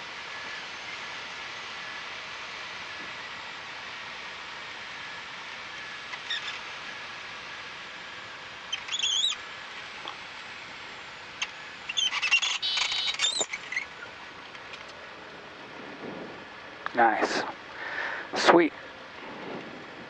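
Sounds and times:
cockpit hiss: 4.5 - 19.8
tyres squeaking on runway: 8.7 - 9.4, 11.4 - 14.2.

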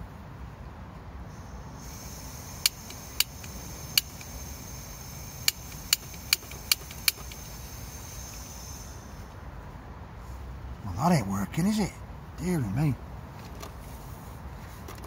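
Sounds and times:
gas hissing from stove burner: 1.3 - 9.3
igniter clicks: 1.8 - 8.5.

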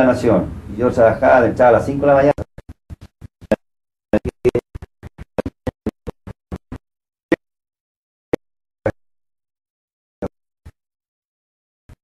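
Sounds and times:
man's voice stuttering fragments: 0.0 - 6.8.

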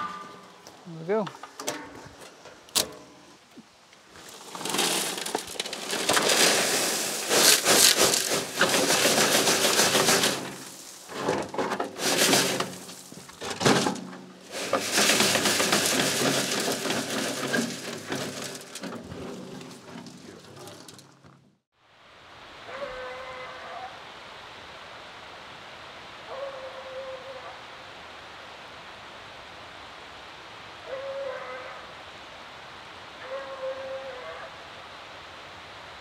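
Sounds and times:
gravel pouring from wheelbarrow: 4.1 - 21.3.

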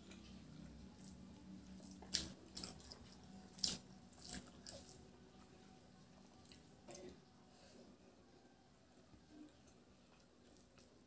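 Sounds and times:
faint low hum: 0.0 - 11.0
wet eating smacks: 1.8 - 5.0.

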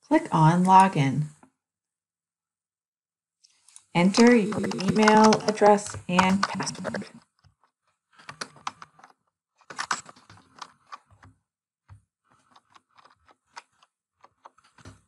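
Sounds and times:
typing on computer keyboard: 4.2 - 7.0, 8.2 - 11.3.

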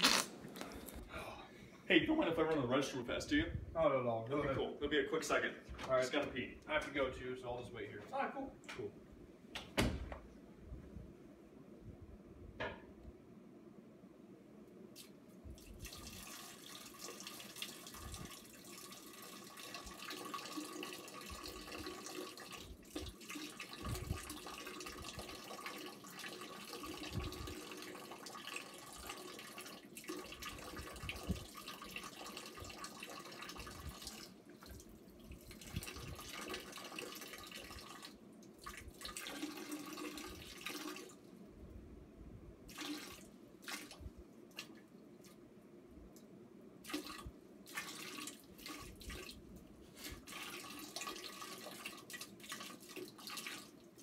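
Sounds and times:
urine splashing into toilet water: 15.0 - 41.2, 42.7 - 45.4, 46.8 - 54.0.

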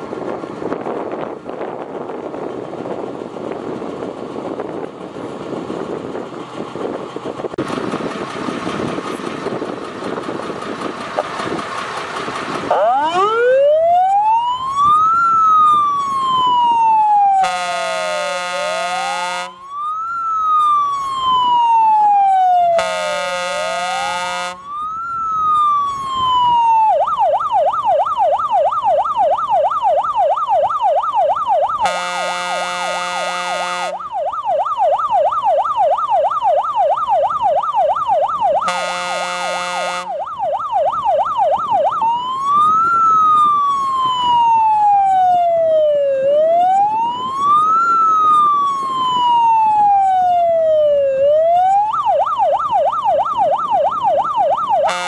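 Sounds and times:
fire engine siren wailing and yelping: 10.2 - 55.0
loud horn blasts: 17.4 - 19.6, 22.8 - 24.6, 31.8 - 34.0, 38.6 - 40.2.

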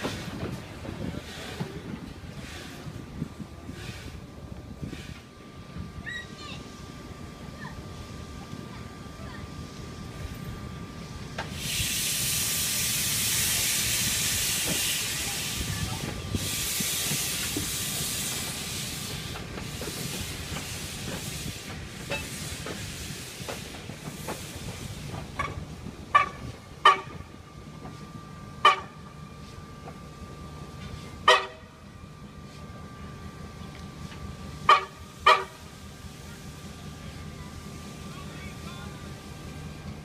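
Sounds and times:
steam hissing: 11.0 - 25.8.

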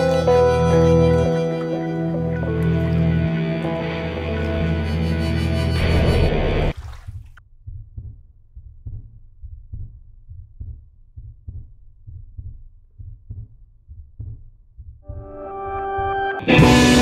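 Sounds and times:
heartbeat thumps: 6.8 - 16.2.

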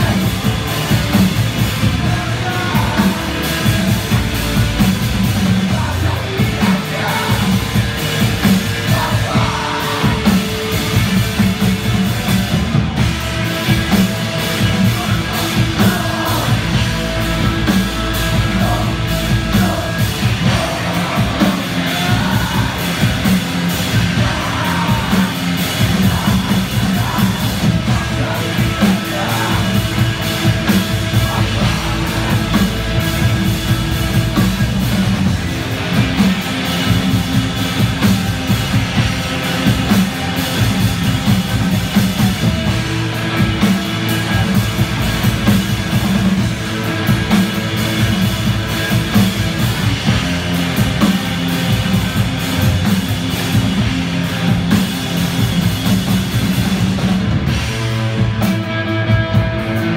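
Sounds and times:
shouted vocals: 0.0 - 11.0, 14.5 - 34.4
drum kit: 0.0 - 59.9
electric guitars: 0.0 - 59.9.

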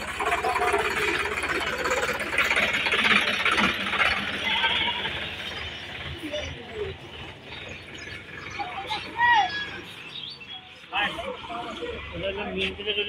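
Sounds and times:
tractor diesel engine clattering: 0.0 - 13.0.

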